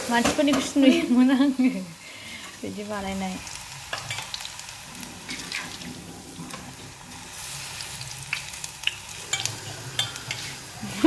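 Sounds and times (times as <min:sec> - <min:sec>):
vegetables sizzling in hot oil: 0:00.0 - 0:11.0
spatula scraping and tapping pan: 0:09.3 - 0:10.6.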